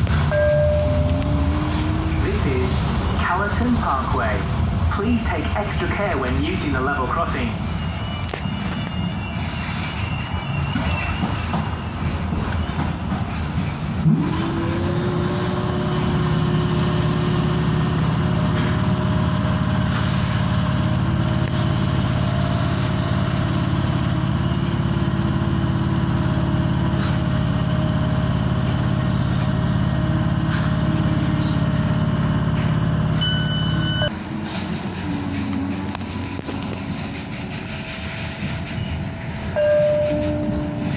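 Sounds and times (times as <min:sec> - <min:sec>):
train noise: 0:00.0 - 0:40.9
short high beep: 0:33.2 - 0:34.1.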